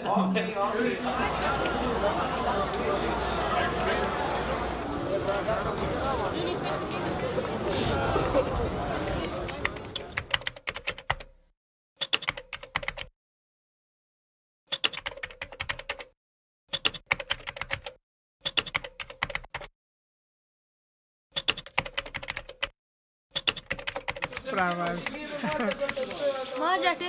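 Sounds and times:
keyboard typing bursts: 9.5 - 11.3, 12.0 - 13.1, 14.7 - 19.7, 21.3 - 22.7, 23.4 - 26.7.

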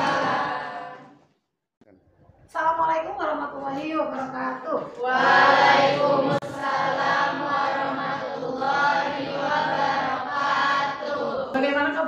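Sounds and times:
students chanting in unison: 0.0 - 1.2, 5.0 - 11.6.

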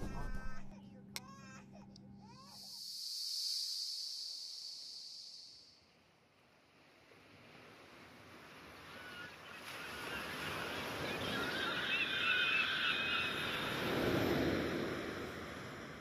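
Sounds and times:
warbling bird calls: 8.8 - 14.6.

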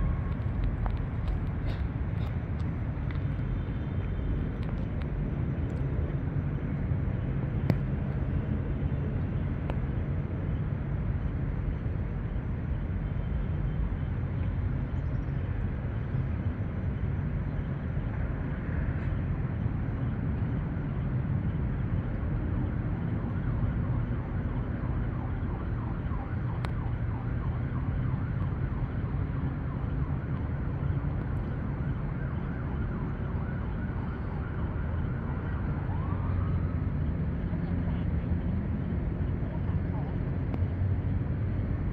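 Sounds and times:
distant traffic rumble: 0.0 - 41.9.

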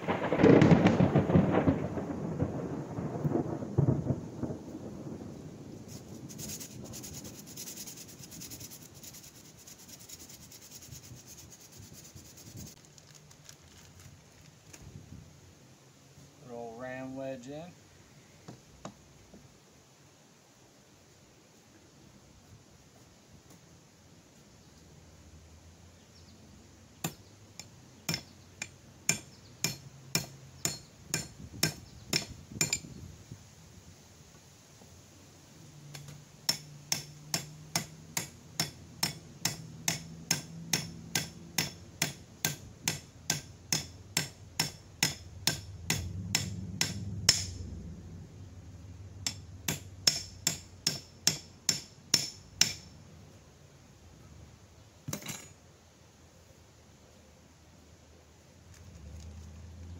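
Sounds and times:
hammer tapping axe head: 49.2 - 52.9.

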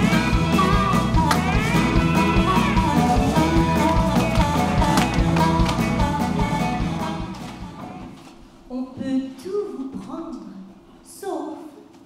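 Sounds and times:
music with steady beat: 0.0 - 8.2.

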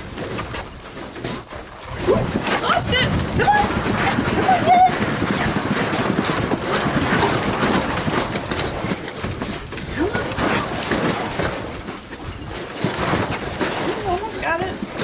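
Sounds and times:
carpet treadmill belt clattering: 2.4 - 15.0.

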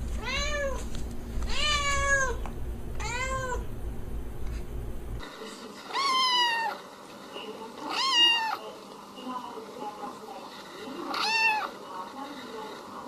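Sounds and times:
cat meowing: 0.2 - 0.8, 1.5 - 2.4, 3.0 - 3.7, 5.9 - 6.8, 7.9 - 8.6, 11.1 - 11.7
kitten meowing: 0.2 - 0.8, 1.5 - 2.4, 3.0 - 3.6, 11.1 - 11.7.

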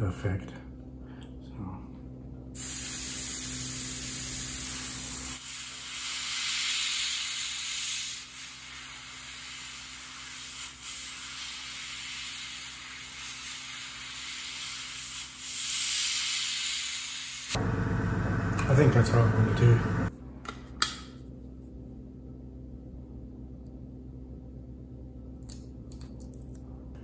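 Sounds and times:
airbrush hissing: 2.6 - 17.6
low hum: 17.6 - 27.0.

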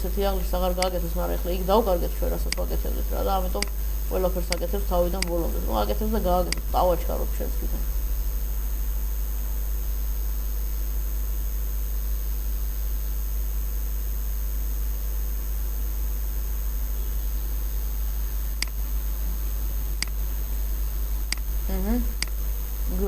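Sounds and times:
electrical hum with hiss: 0.0 - 23.0
faint high-pitched whine: 0.0 - 23.0
sharp click: 18.6 - 18.8, 20.0 - 20.2.

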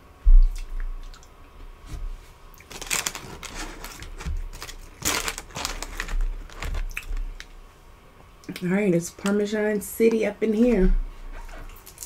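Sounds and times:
paper wrapper crinkling: 2.6 - 7.5.

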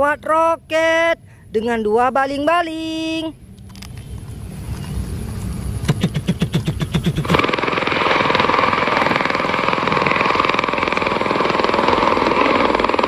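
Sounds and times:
steady engine whine: 1.1 - 13.0
aircraft rotor chop: 4.4 - 13.0
rapid rhythmic pulsing: 5.8 - 13.0.

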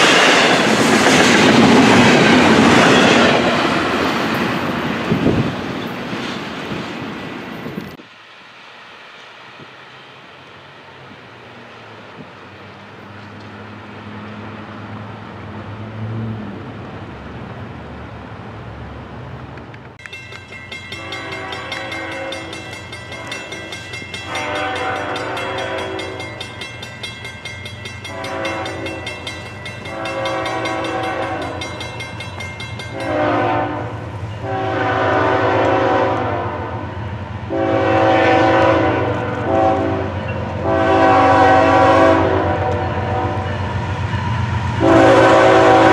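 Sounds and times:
train cars rumbling: 0.0 - 45.9
locomotive air horn blasts: 20.9 - 26.4, 28.0 - 29.1, 29.8 - 31.7, 32.9 - 36.9, 37.5 - 43.6, 44.8 - 45.9.

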